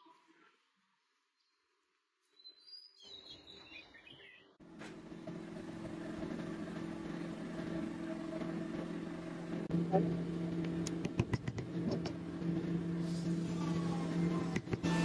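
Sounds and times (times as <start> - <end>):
machine motor hum: 4.6 - 15.0.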